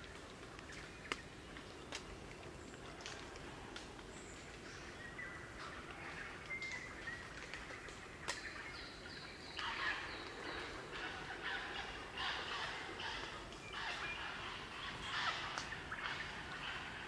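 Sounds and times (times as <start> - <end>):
birds piping: 4.0 - 17.0
birds chattering harshly: 8.7 - 17.0.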